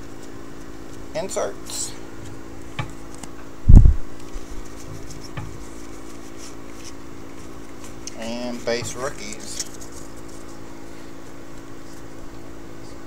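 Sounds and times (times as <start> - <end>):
trading cards clicking and sliding: 4.2 - 10.6.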